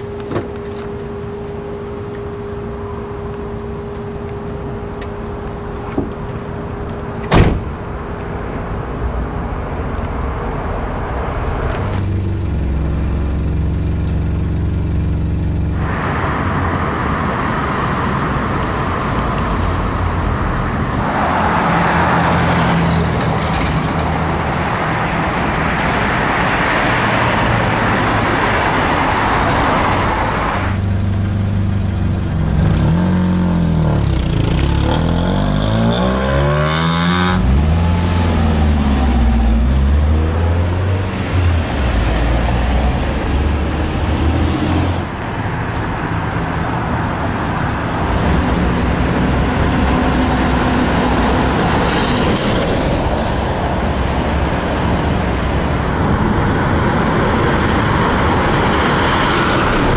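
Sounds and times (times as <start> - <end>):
steady traffic hiss: 0.0 - 35.7
cars driving past: 0.0 - 59.9
engine accelerating: 27.6 - 45.2.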